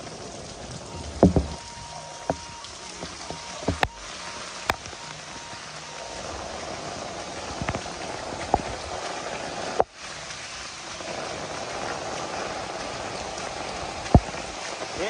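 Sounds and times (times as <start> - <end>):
heavy rain pouring: 0.0 - 15.0
sharp knocks: 1.1 - 1.6.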